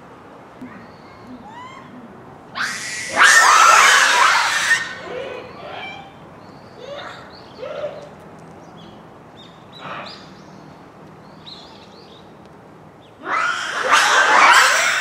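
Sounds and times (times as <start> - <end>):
monkey harsh scream: 2.6 - 6.1, 13.2 - 15.0
monkeys short high calls: 2.6 - 6.1.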